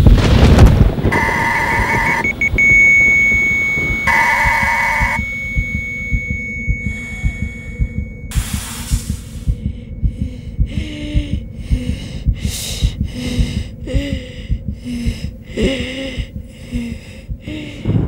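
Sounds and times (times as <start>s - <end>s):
low throbbing pulse: 0.0s - 18.0s
hissing breaths through respirator: 8.3s - 9.9s.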